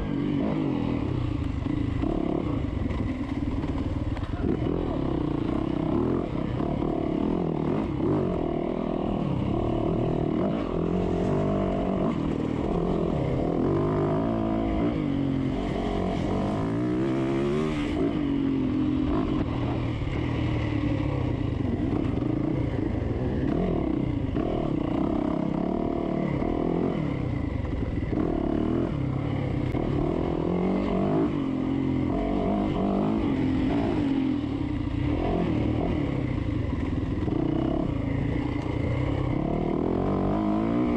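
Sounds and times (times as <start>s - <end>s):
dirt bike engine revving: 29.6s - 40.9s.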